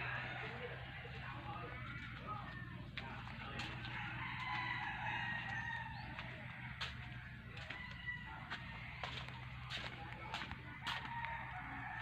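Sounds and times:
rooster crowing: 0:00.0 - 0:01.0, 0:03.8 - 0:09.1, 0:10.7 - 0:12.0.

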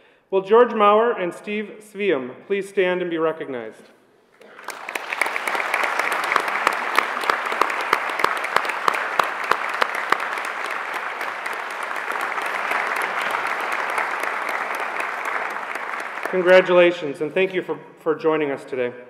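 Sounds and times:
audience applauding: 0:04.4 - 0:17.0.

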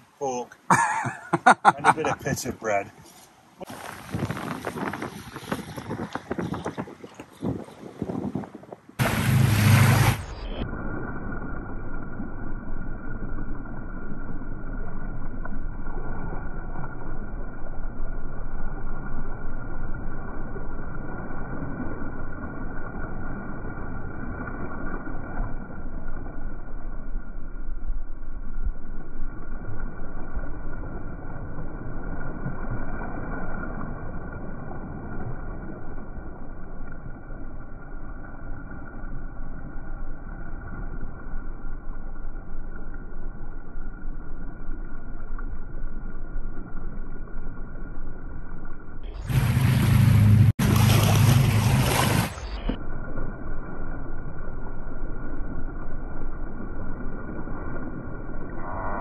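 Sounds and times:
sea water rushing: 0:00.0 - 0:27.2, 0:29.2 - 0:48.2, 0:49.0 - 0:59.0
wind buffeting on microphone: 0:03.7 - 0:10.4
wind rushing: 0:03.7 - 0:10.6.

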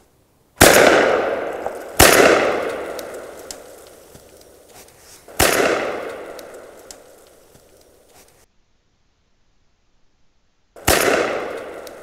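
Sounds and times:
rolling echo through woodland: 0:00.0 - 0:12.0
shotgun shots: 0:00.6 - 0:03.8, 0:05.3 - 0:07.1, 0:10.8 - 0:12.0.

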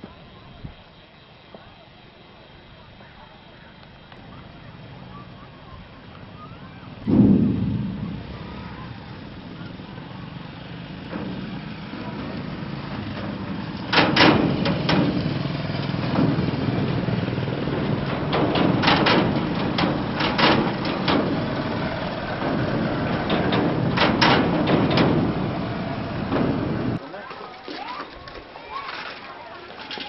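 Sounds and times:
motorcycle engines humming: 0:00.0 - 0:27.0
sharp knocks on steel bridge: 0:07.0 - 0:27.0.

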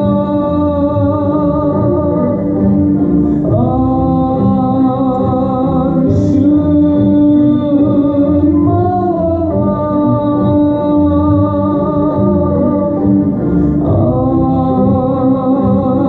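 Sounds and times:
person singing long held notes: 0:00.0 - 0:16.0
stage music accompaniment: 0:00.0 - 0:16.0.

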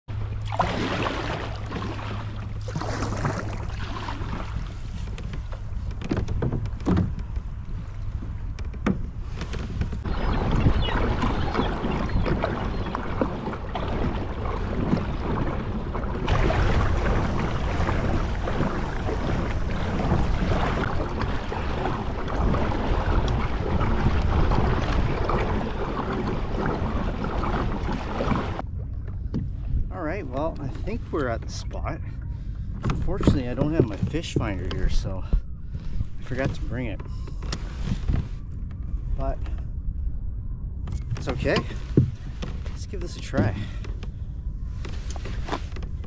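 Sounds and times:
water rushing along kayak hull: 0:00.1 - 0:39.5, 0:40.5 - 0:46.0
wind on microphone: 0:00.6 - 0:46.0.

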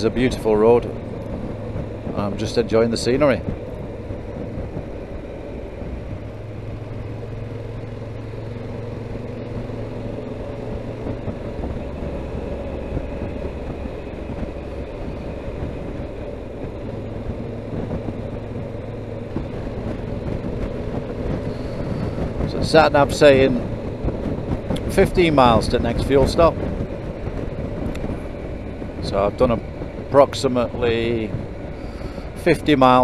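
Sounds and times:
motorcycle engine cruising: 0:00.0 - 0:33.0
wind and road noise: 0:00.0 - 0:33.0.

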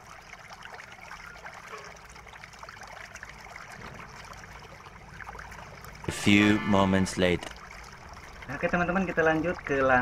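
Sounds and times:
quiet crackling noise: 0:07.2 - 0:09.9.

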